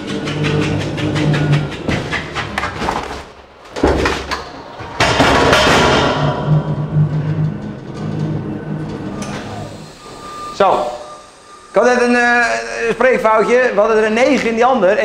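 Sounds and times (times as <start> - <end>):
electric pallet truck thudding: 0.0 - 14.5
hard knock: 3.8 - 6.5.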